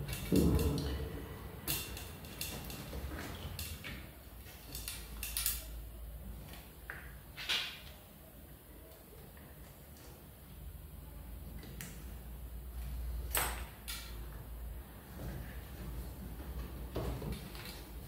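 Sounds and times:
gear cable clicks and rattles: 0.0 - 5.8, 16.9 - 18.0.

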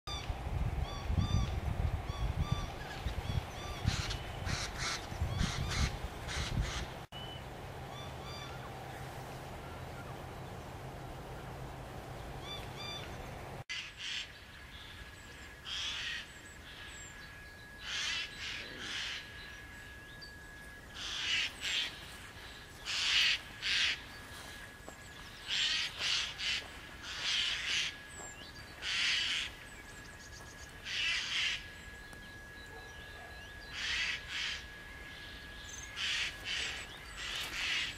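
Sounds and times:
jay screeching calls: 2.5 - 6.9, 17.8 - 19.4, 20.9 - 22.0, 28.8 - 29.6, 30.8 - 31.7, 33.6 - 34.8, 35.8 - 37.9.

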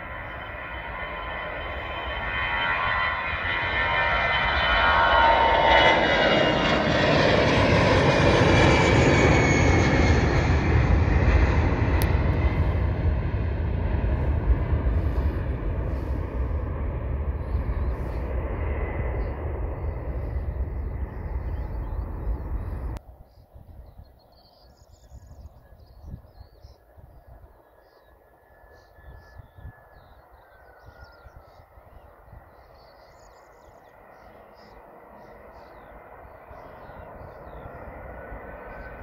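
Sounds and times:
distant jet engine whine: 0.0 - 39.0
jet engines rumbling: 0.0 - 39.0
wind on microphone: 10.2 - 27.8, 28.8 - 32.8
small birds chirping: 17.3 - 39.0.

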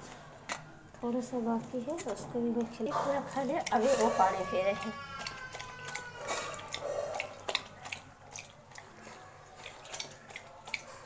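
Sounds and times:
dog lapping water from bowl: 2.8 - 11.0.

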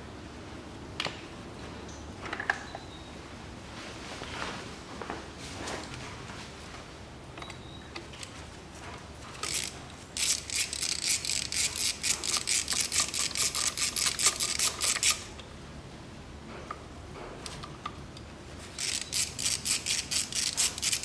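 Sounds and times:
ratchet clicking: 9.4 - 15.3, 18.7 - 21.0.

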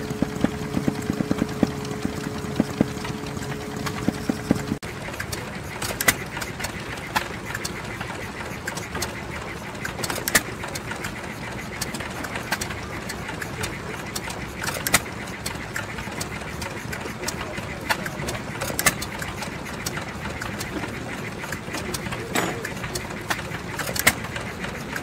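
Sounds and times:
stationary engine running: 0.0 - 25.0.

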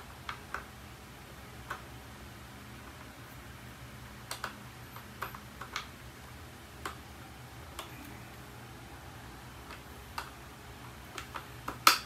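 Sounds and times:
plastic clicks and taps: 4.3 - 5.9.

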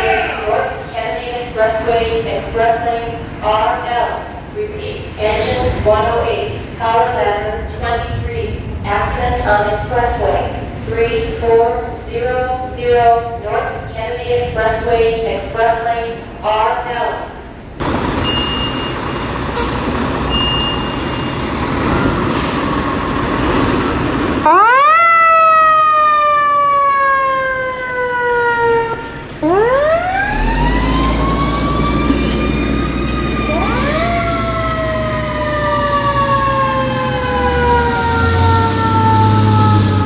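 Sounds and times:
low rumble of truck engines: 17.4 - 40.0
fire truck siren wailing: 24.3 - 40.0.

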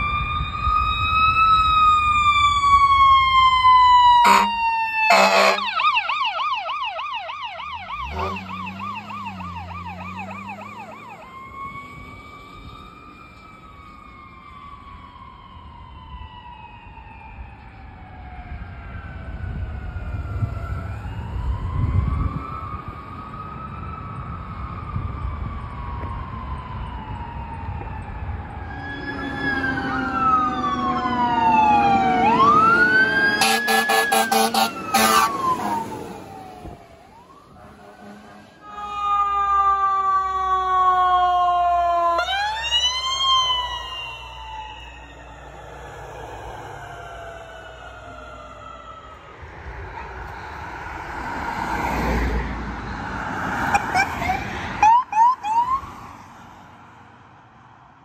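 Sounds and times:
fire truck siren wailing: 0.0 - 58.0
passing vehicle road noise: 0.0 - 58.0
air horn blasts: 4.2 - 5.8, 8.0 - 8.6, 33.4 - 35.4, 37.6 - 39.0.

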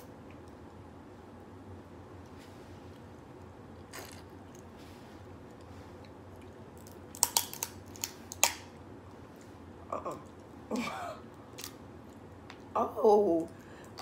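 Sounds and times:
crab shells cracking: 6.8 - 8.7.

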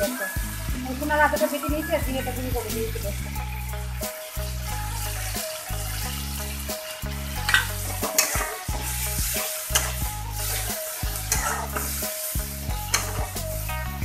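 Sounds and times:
masala sizzling in a pan: 0.0 - 14.0
metal spatula scraping a pan: 3.4 - 13.4.

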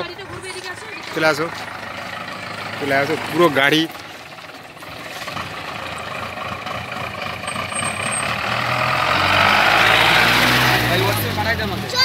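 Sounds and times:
car driving past: 7.3 - 11.9.

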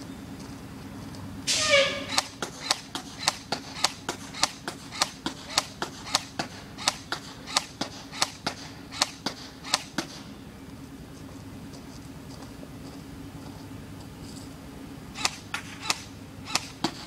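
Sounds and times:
airsoft rifle shots: 1.5 - 10.3, 15.2 - 17.0.

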